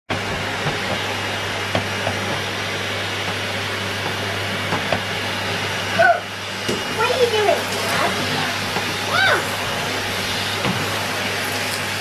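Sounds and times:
vacuum cleaner running: 0:00.1 - 0:12.0.

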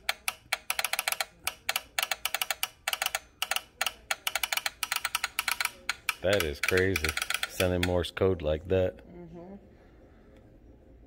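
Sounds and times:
telegraph sounder clicking morse code: 0:00.0 - 0:08.0.

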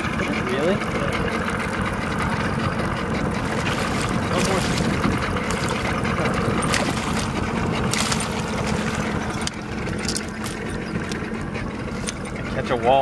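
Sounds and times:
boat motor idling: 0:00.0 - 0:13.0
fish splashing at surface: 0:03.4 - 0:10.7.

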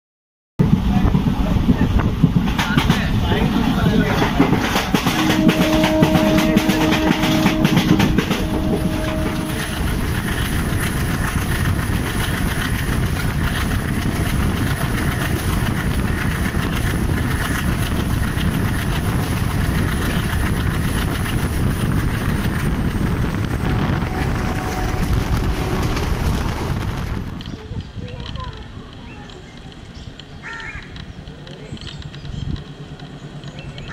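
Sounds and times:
train wheels on rail: 0:00.6 - 0:33.9
steady pitched tone: 0:04.9 - 0:10.2.

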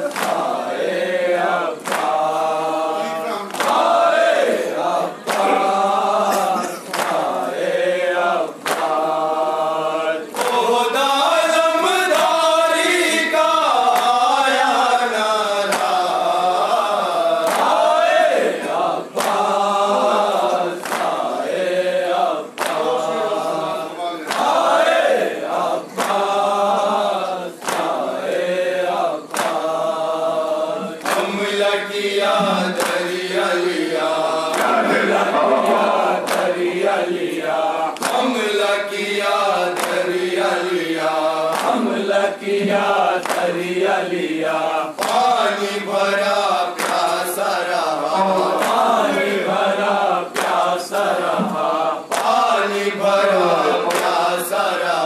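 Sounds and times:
hands slapping chests: 0:00.0 - 0:00.5, 0:01.8 - 0:02.3, 0:03.5 - 0:04.0, 0:05.2 - 0:05.8, 0:22.6 - 0:22.9, 0:27.6 - 0:28.0, 0:29.3 - 0:29.7, 0:32.2 - 0:33.1, 0:34.5 - 0:36.6, 0:37.2 - 0:38.3, 0:39.8 - 0:40.1, 0:41.5 - 0:41.9, 0:43.2 - 0:43.5, 0:45.0 - 0:45.3, 0:46.8 - 0:47.2, 0:48.4 - 0:48.9, 0:50.4 - 0:52.4, 0:53.8 - 0:54.2
men chanting a lament: 0:00.0 - 0:55.0.

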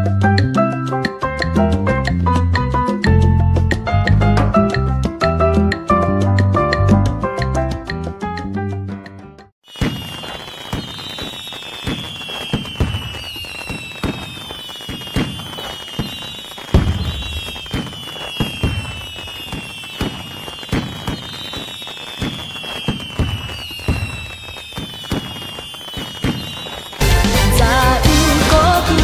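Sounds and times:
fireworks bangs and booms: 0:09.6 - 0:27.0
fireworks whistles falling in pitch: 0:09.6 - 0:27.4.

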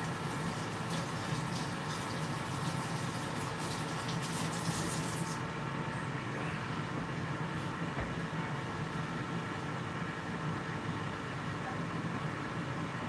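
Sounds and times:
air fryer fan hum: 0:00.0 - 0:13.0.

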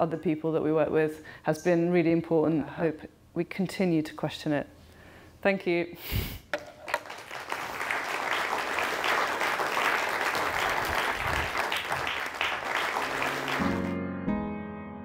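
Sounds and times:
audience applauding: 0:06.6 - 0:14.0
music: 0:12.7 - 0:15.0.

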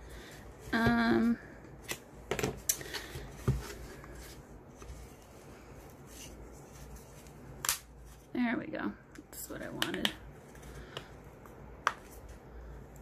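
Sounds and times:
soft rubbing and scraping: 0:03.3 - 0:08.4.

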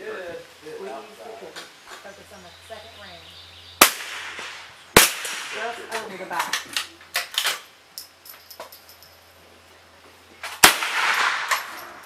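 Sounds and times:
rifle shots: 0:03.8 - 0:06.0, 0:10.5 - 0:12.0.

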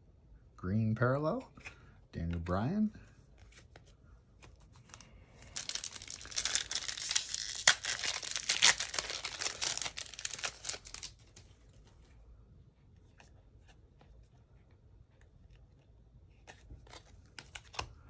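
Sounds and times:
foil wrapper tearing and crinkling: 0:05.5 - 0:11.2.

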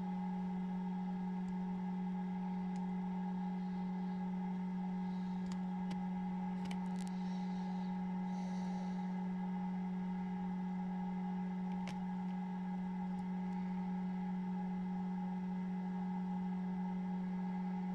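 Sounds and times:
incubator fan hum: 0:00.0 - 0:17.9
faint clicks: 0:02.5 - 0:02.9, 0:05.1 - 0:07.4, 0:11.6 - 0:12.4.

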